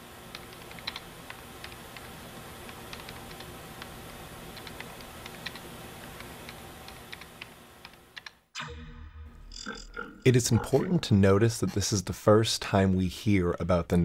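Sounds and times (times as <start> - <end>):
computer keyboard typing: 0.3 - 3.9, 4.5 - 8.4
low hum: 8.6 - 12.7.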